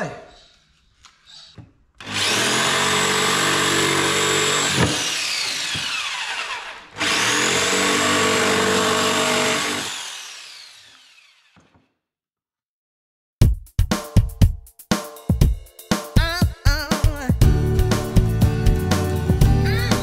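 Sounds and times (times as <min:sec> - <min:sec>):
jigsaw cutting plywood: 0:02.0 - 0:11.9.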